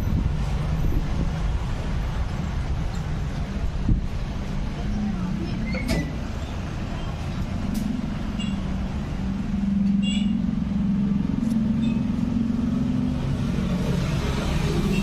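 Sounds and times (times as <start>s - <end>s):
vehicle engine running: 6.3s - 15.0s.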